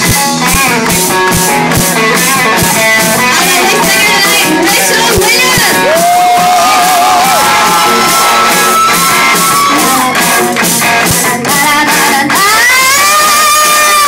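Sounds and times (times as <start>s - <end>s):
drums: 0.0s - 14.0s
electric guitar: 0.0s - 14.0s
women singing: 9.7s - 14.0s.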